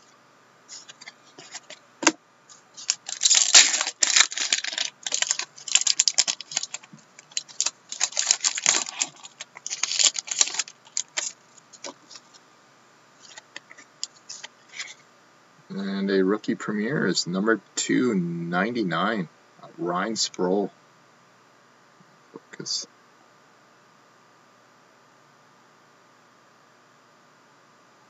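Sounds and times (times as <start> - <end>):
trading cards clicking and rustling: 0.7 - 2.2, 2.8 - 12.4, 13.2 - 15.0.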